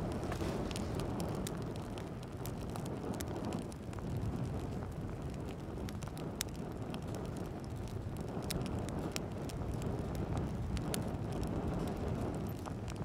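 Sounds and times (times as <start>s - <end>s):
wood fire crackling and popping: 0.0s - 13.0s.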